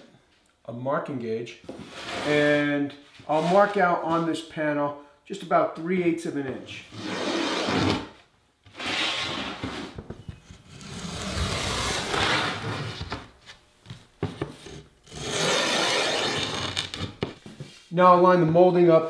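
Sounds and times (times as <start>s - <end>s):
marking gauge scraping wood: 14.6s - 17.1s.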